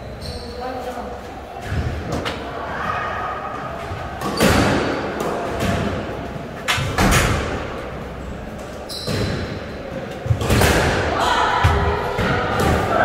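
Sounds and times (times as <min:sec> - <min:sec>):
squash ball hits echoing: 0:04.0 - 0:07.8, 0:09.0 - 0:13.0
shoes squeaking on wooden floor: 0:08.7 - 0:09.8.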